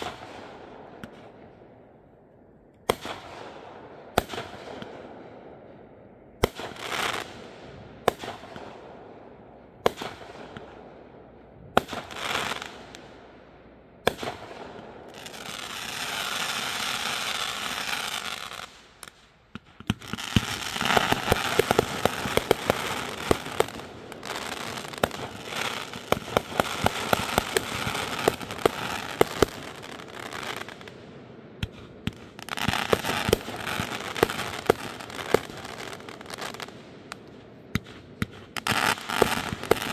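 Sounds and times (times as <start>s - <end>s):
firework crackling pops: 0.0s - 0.4s, 2.8s - 5.0s, 6.4s - 8.8s, 9.8s - 10.8s, 11.7s - 13.2s, 14.0s - 31.0s, 31.6s - 39.9s
firework bangs: 0.0s - 1.3s, 14.0s - 31.0s, 31.6s - 39.9s.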